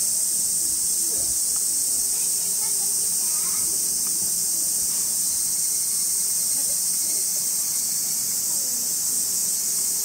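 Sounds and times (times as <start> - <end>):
cicada chorus drone: 0.0 - 10.0.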